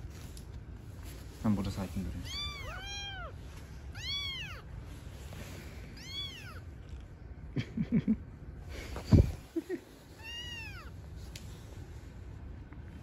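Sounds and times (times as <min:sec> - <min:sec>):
kitten meowing: 0:02.2 - 0:04.7, 0:06.0 - 0:06.7, 0:10.2 - 0:10.9.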